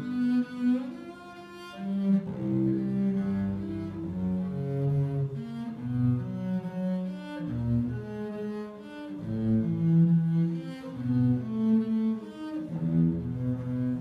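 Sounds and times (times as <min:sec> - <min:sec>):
bowed cello melody: 0:00.0 - 0:14.0.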